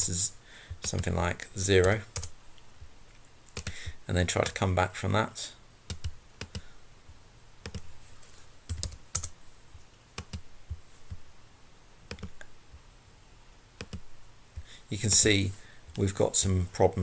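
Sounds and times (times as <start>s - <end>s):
keyboard and mouse clicks: 0.7s - 1.1s, 3.5s - 4.6s, 5.9s - 6.7s, 7.6s - 7.9s, 10.2s - 11.2s, 12.1s - 12.6s, 13.8s - 14.1s.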